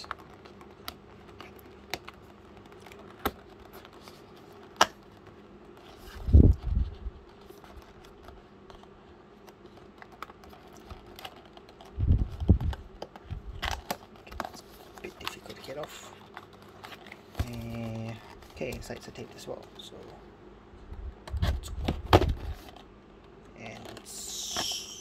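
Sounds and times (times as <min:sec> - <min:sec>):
box thumping on desk: 0:21.9 - 0:22.4.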